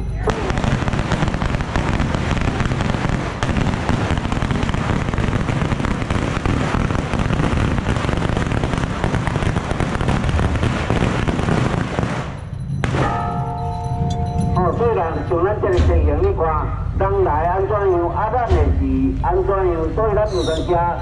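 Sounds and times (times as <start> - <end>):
firecrackers crackling: 0.2 - 13.2.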